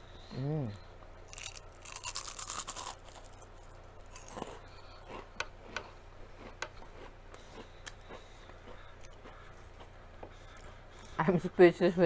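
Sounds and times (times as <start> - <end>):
crunchy bite into chip: 1.3 - 4.6
closed-mouth chewing: 1.3 - 11.2.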